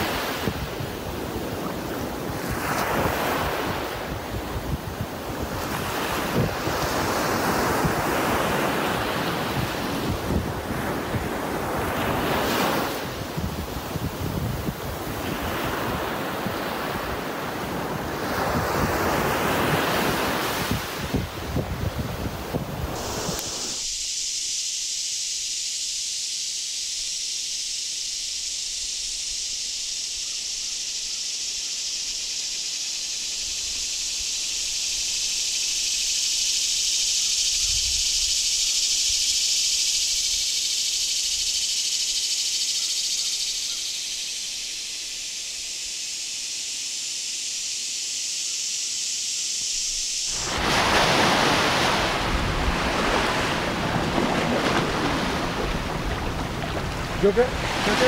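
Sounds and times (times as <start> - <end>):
wind and surf rushing: 0.0 - 25.0, 44.2 - 58.0
high-pitched hiss: 0.0 - 58.0.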